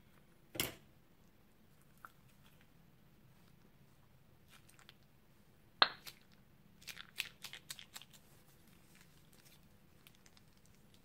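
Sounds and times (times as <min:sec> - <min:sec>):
slime crackling and popping: 0:05.8 - 0:11.0.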